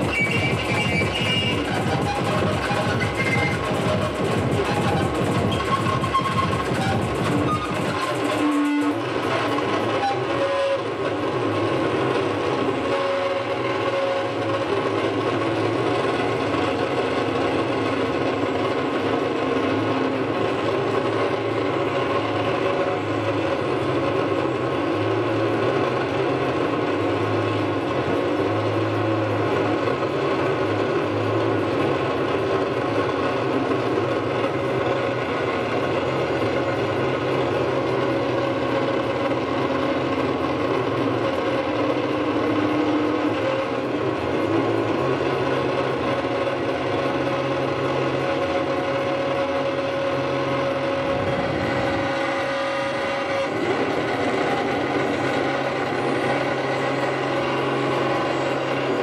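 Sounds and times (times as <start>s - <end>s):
electric guitar drone: 0.0s - 59.0s
low hum cutting in and out: 33.4s - 59.0s.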